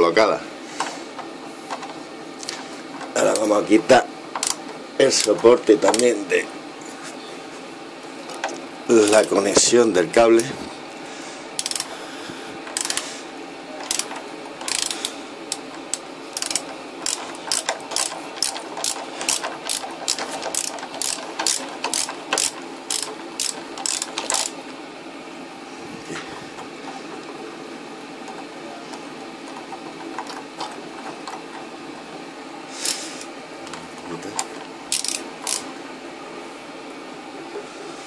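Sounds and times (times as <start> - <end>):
ratchet wrench clicking: 4.4 - 4.6, 11.6 - 11.9, 12.7 - 13.0, 13.8 - 24.6, 34.9 - 35.7.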